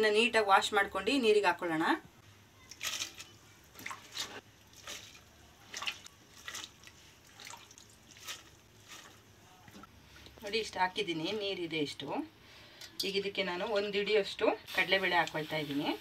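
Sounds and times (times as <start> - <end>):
hands washing cabbage in water: 2.7 - 9.8.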